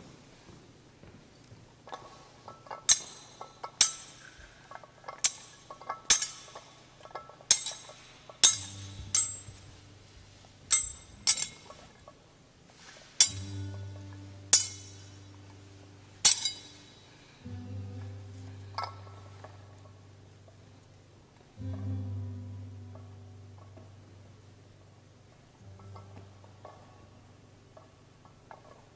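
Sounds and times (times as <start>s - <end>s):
soft low held musical tone: 0.0s - 28.9s
metal censer chains clinking: 5.2s - 9.8s, 10.7s - 11.9s, 14.5s - 15.2s, 16.2s - 17.3s.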